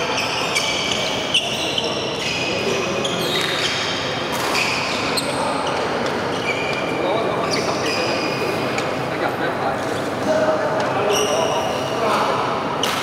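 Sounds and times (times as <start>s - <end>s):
shoes squeaking on court: 0.0s - 8.6s, 11.0s - 11.9s.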